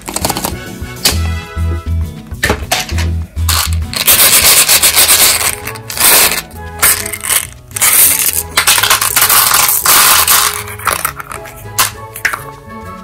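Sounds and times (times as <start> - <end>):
faint background music: 0.0 - 13.0
candies rattling in plastic egg: 3.5 - 11.9.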